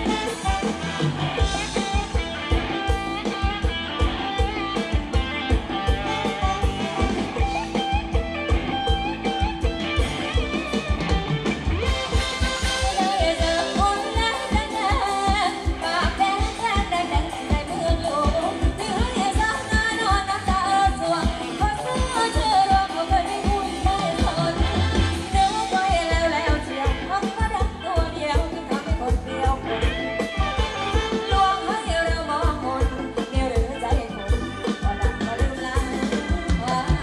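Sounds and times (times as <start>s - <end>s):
electric guitar: 0.0s - 37.0s
person singing: 11.9s - 37.0s.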